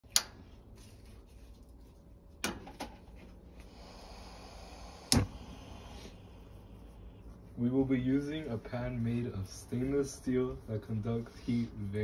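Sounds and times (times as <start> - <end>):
faint hiss: 3.6 - 12.0.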